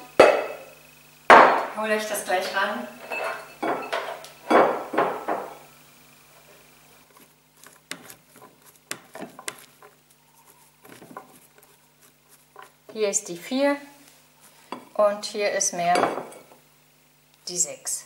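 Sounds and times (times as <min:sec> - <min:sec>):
spatula scraping blender jug: 0:07.1 - 0:13.0.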